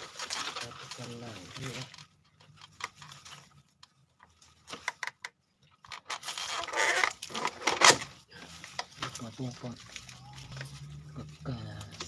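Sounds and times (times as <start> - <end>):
leaves and stalks rustling: 0.0 - 2.1, 8.3 - 12.0
stalks clicking and snapping: 1.5 - 8.1.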